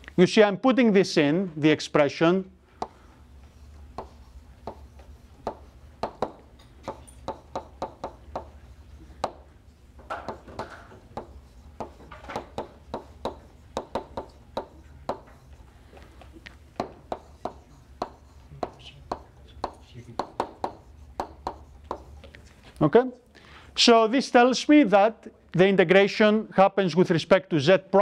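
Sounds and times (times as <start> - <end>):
low room hum: 0.0 - 28.0
chalk tapping on blackboard: 2.8 - 22.4
chalk scratching strokes: 2.8 - 22.7.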